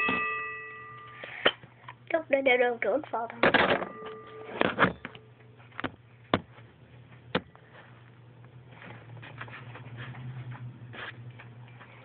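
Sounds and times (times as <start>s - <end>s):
low hum: 3.4s - 12.0s.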